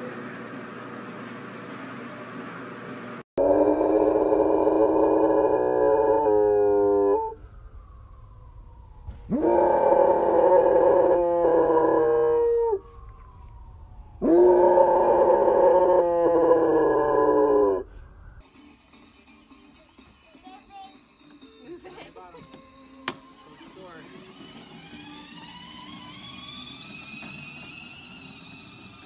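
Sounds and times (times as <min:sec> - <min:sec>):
dog howling: 0:03.4 - 0:07.4, 0:09.3 - 0:13.0, 0:14.2 - 0:17.9.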